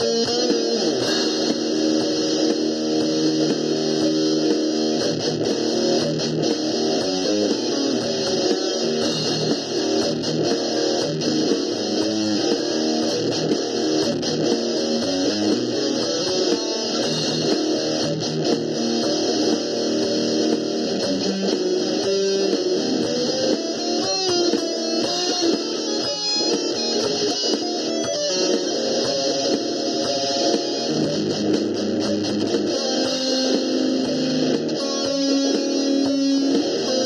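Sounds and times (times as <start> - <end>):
electric guitar picking: 0.0 - 37.0.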